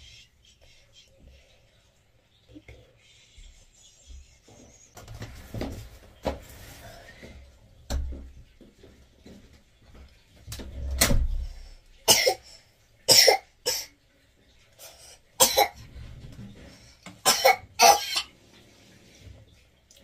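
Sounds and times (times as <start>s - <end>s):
child coughing: 12.1s - 12.4s, 13.1s - 13.9s, 15.4s - 15.8s, 17.2s - 18.3s.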